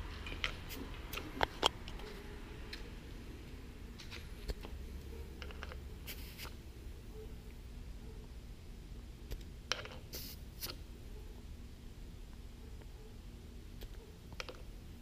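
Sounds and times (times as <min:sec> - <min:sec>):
low steady hum: 0:00.0 - 0:15.0
short scraping hiss: 0:06.1 - 0:06.6, 0:10.1 - 0:10.8.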